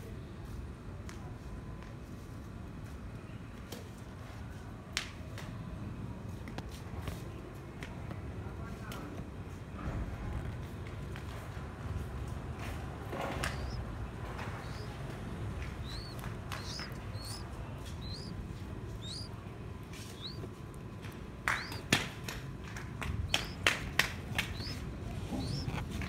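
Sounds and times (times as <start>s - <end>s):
sharp taps: 13.4s - 19.3s, 20.0s - 26.0s
nestling high chirps: 13.4s - 19.4s, 20.0s - 20.4s, 21.5s - 21.9s, 23.2s - 23.7s, 24.3s - 26.0s.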